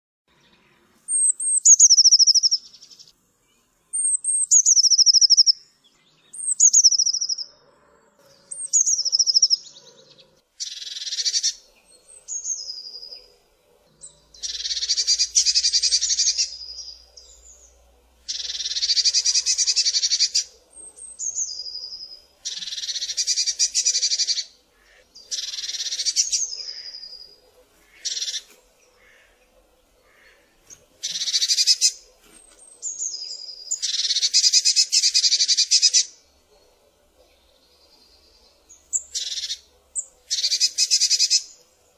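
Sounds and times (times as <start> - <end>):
bird churring calls: 1.1 - 2.7, 4.0 - 5.6, 6.4 - 7.6, 8.3 - 17.7, 18.3 - 32.1, 32.9 - 36.3, 38.6 - 41.6
bird calling with thin trills: 1.1 - 3.1, 3.9 - 5.6, 6.3 - 7.5, 8.5 - 13.3, 14.0 - 17.6, 18.3 - 29.3, 38.9 - 41.6.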